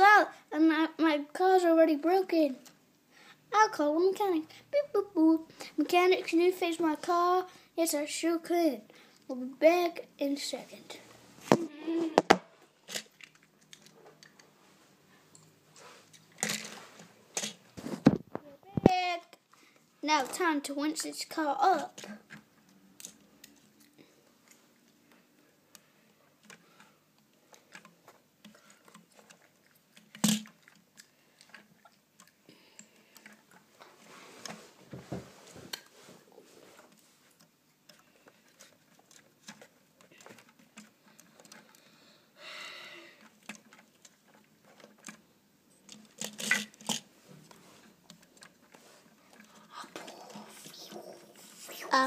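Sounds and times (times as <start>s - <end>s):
plastic pieces clicking and rattling: 12.2s - 14.4s, 16.3s - 17.6s, 27.6s - 33.6s, 43.2s - 47.1s.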